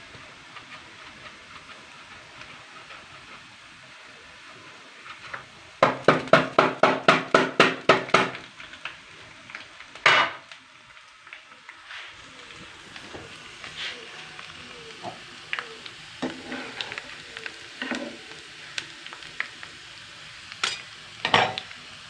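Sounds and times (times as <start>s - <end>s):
faint frying hiss: 0.0s - 22.0s
metal grater knocking on pan: 5.8s - 8.4s.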